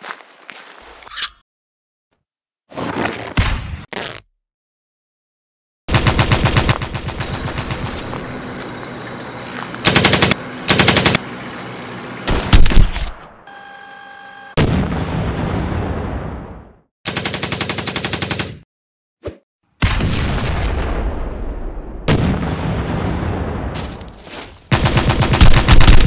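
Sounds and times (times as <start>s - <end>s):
machine-gun fire: 5.9s - 8.1s, 9.8s - 11.2s, 24.7s - 26.0s.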